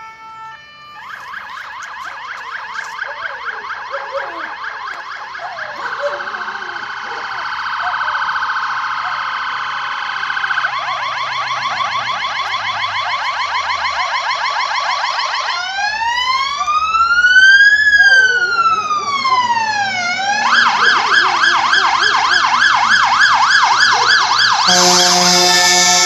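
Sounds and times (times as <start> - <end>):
electronic siren: 0.0 - 26.0
low vehicle horn: 24.6 - 26.0.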